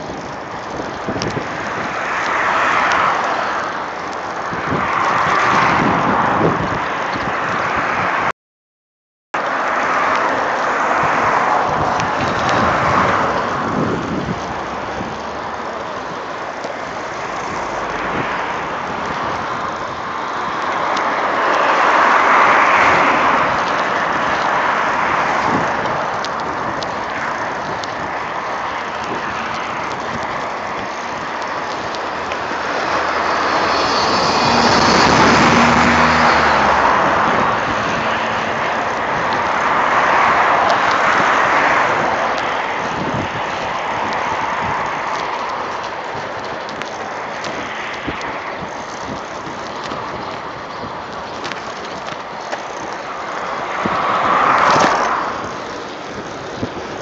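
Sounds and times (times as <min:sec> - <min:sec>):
cars driving past: 0:09.4 - 0:57.0
high engine whine: 0:31.8 - 0:39.6.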